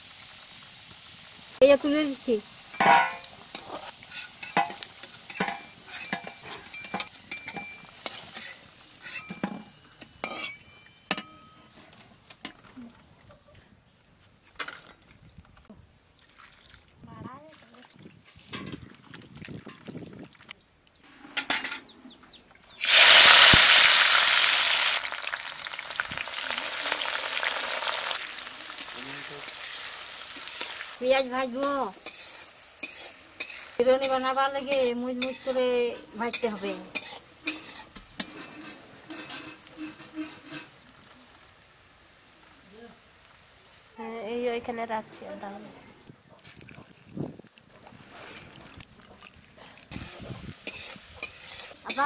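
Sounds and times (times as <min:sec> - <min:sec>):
faint oil sizzle: 0:00.0 - 0:11.2, 0:22.8 - 0:45.4, 0:49.9 - 0:52.0
metal spatula scraping iron pan: 0:02.7 - 0:11.9, 0:31.6 - 0:40.8, 0:49.9 - 0:52.0.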